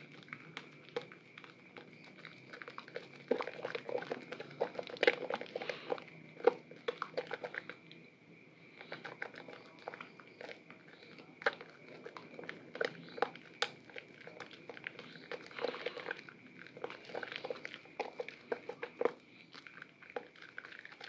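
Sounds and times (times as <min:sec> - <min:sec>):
hands squelching soapy lather: 0:00.0 - 0:07.8, 0:08.8 - 0:21.0.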